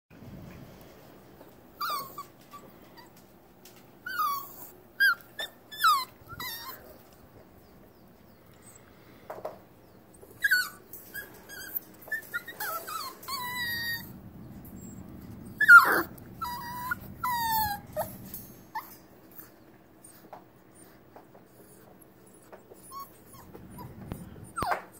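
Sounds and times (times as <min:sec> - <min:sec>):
puppy whining and whimpering: 0:01.8 - 0:03.2, 0:04.0 - 0:07.3, 0:10.1 - 0:24.9.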